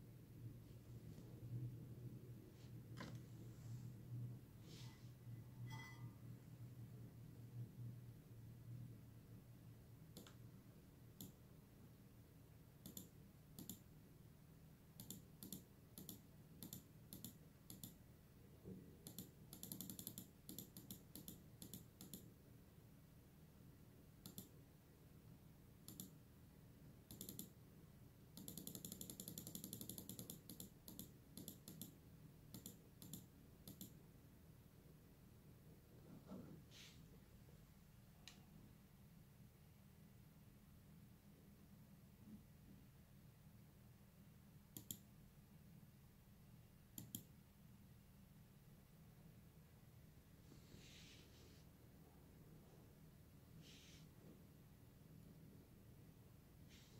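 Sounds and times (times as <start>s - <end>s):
faint low hum: 0.0s - 56.9s
computer mouse clicks: 10.1s - 10.4s, 11.2s - 11.4s, 12.8s - 13.9s, 15.0s - 18.0s, 19.0s - 22.3s, 24.2s - 24.6s, 25.8s - 26.2s, 27.1s - 27.6s, 28.4s - 34.0s, 44.8s - 45.1s, 46.9s - 47.3s.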